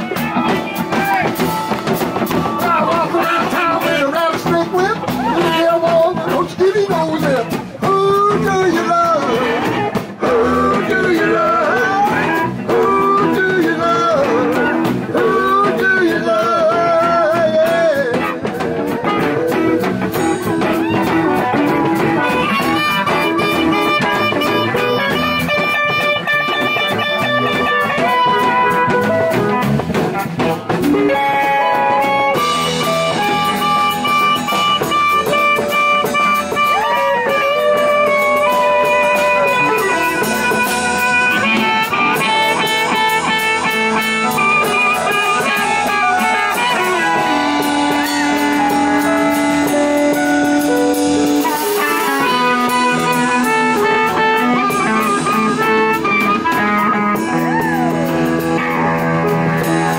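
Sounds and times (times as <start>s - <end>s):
blues band playing: 0.0s - 59.9s
harmonica solo: 19.2s - 29.4s, 30.9s - 59.9s.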